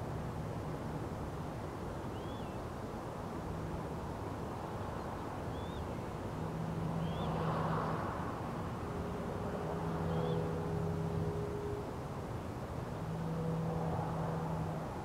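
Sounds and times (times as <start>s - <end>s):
low rumble of road traffic: 0.0s - 15.0s
passing vehicle engine hum: 5.4s - 15.0s.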